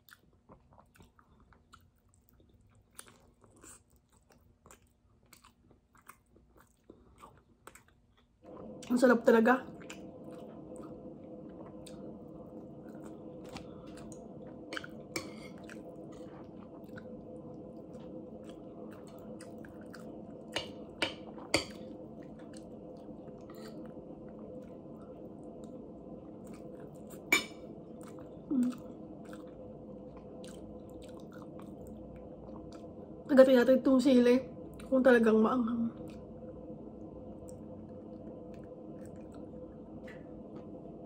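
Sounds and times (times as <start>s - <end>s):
person chewing food: 0.0s - 8.8s, 9.8s - 33.0s, 37.4s - 40.9s
steady hum: 8.4s - 41.0s.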